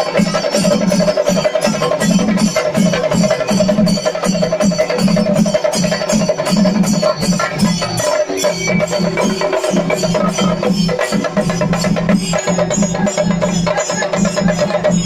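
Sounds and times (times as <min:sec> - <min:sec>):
drums beaten with sticks: 0:00.0 - 0:15.0.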